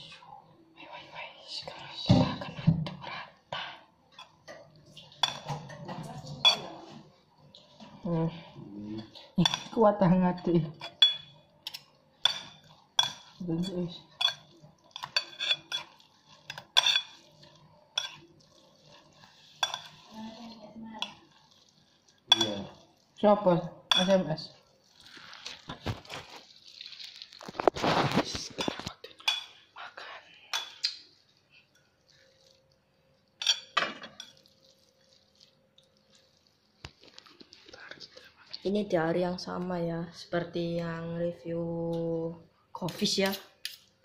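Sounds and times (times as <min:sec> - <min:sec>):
soft stirring and scraping: 0:00.0 - 0:38.9
forks clinking against bowl: 0:05.2 - 0:06.7, 0:10.8 - 0:17.4, 0:18.0 - 0:18.3, 0:19.5 - 0:20.1, 0:22.3 - 0:22.8, 0:33.4 - 0:34.5
fork clinking against plate: 0:22.3 - 0:22.6.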